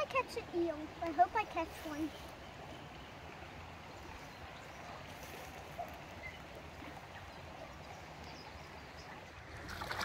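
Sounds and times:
slow-flowing creek water: 0:00.0 - 0:10.0.

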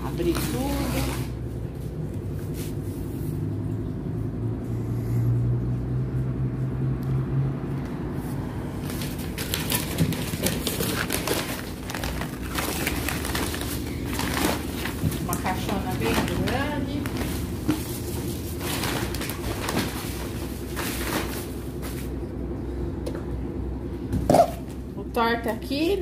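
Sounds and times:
wrapping paper tearing: 0:00.0 - 0:01.4, 0:08.7 - 0:21.6
steady low hum: 0:00.0 - 0:26.0.

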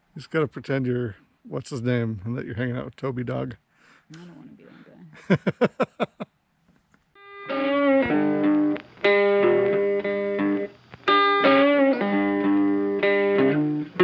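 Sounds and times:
guitar theme music: 0:07.2 - 0:14.0.

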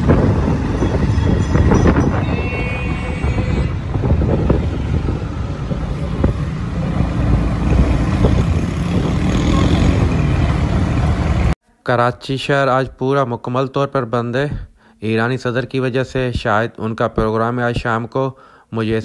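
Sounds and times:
vehicle engine and road noise: 0:00.0 - 0:11.6.

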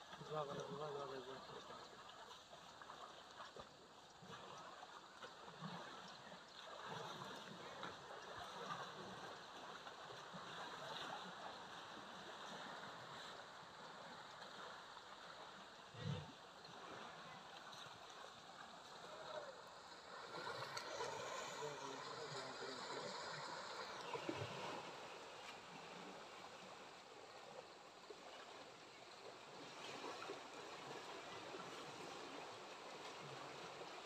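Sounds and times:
running river water: 0:00.0 - 0:34.0
distant voices: 0:18.9 - 0:25.3.

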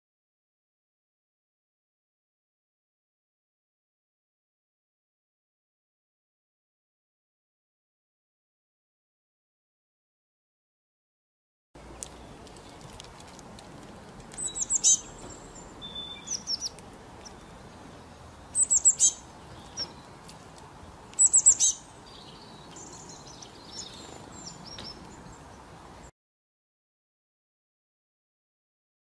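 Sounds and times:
songbirds chirping: 0:11.8 - 0:26.1.

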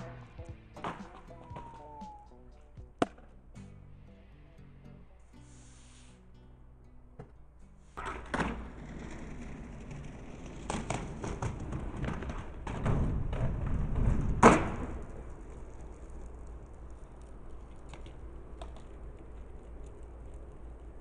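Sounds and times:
skateboard clacking on ground: 0:00.0 - 0:03.4, 0:07.2 - 0:21.0
skateboard wheels on rough concrete: 0:07.2 - 0:21.0.

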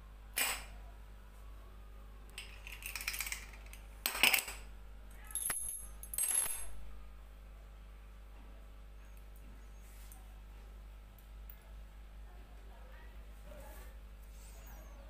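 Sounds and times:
padlock and keys clinking: 0:05.3 - 0:06.8.

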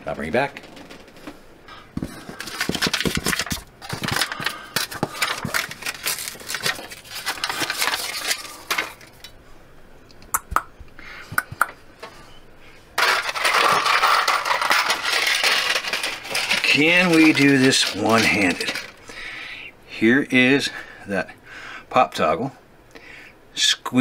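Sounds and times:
plastic bag rustling and rattling: 0:02.0 - 0:09.3, 0:13.0 - 0:19.0
paper crackling pulled off wall: 0:02.4 - 0:09.2.

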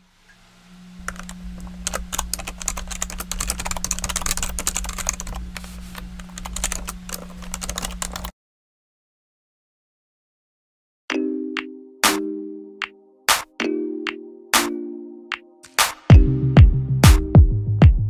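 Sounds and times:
steady low hum: 0:00.0 - 0:08.3
typing on computer keyboard: 0:01.1 - 0:05.4, 0:06.3 - 0:08.3.

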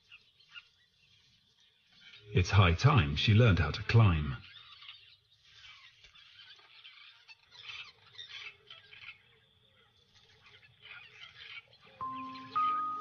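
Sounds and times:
birds chattering: 0:00.0 - 0:13.0
soft music with held notes: 0:12.0 - 0:13.0.

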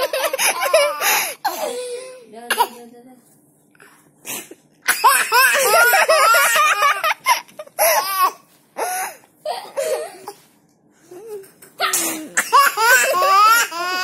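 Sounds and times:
baby laughing: 0:00.0 - 0:01.3, 0:04.9 - 0:10.4, 0:11.8 - 0:14.0.

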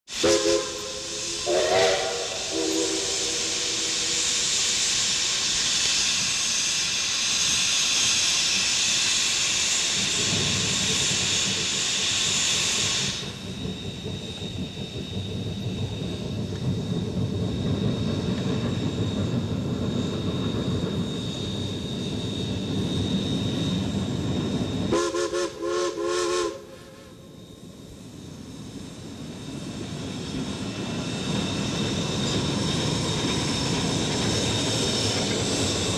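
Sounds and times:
steam whistle chords: 0:00.1 - 0:04.5, 0:24.9 - 0:27.2
heavy locomotive exhaust: 0:00.1 - 0:35.9
steam venting hiss: 0:00.1 - 0:35.9.

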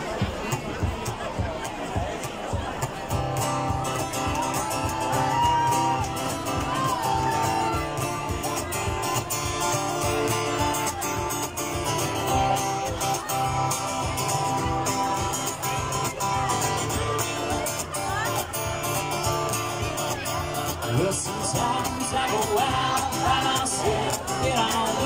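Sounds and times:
acoustic guitar strumming: 0:00.0 - 0:25.0.

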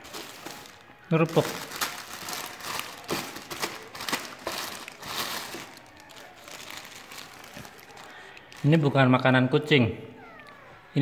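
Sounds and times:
crackers crunching while chewed: 0:00.0 - 0:08.8.

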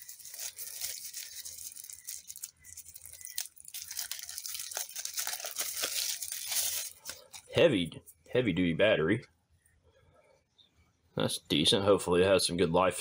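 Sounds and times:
plastic wrapping crinkling: 0:00.0 - 0:07.6.

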